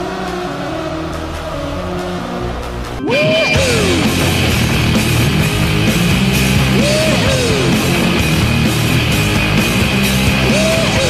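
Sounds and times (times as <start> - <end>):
crowd cheering: 0.0 - 11.0
loud rock music: 0.0 - 11.0
rising and falling whoop: 10.4 - 11.0.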